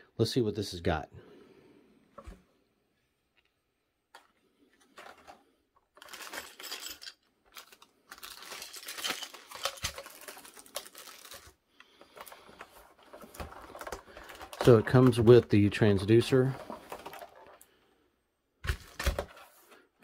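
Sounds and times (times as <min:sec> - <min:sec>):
plastic bags crinkling: 0:04.8 - 0:17.7.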